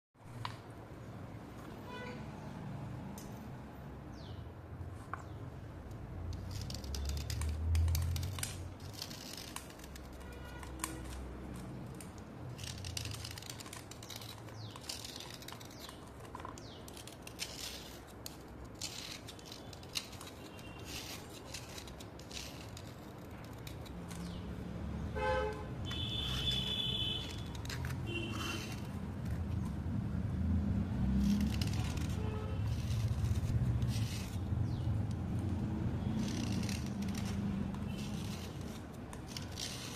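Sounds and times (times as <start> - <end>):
blade scraping stone: 6.2 - 24.6, 25.9 - 29.8, 30.7 - 39.9.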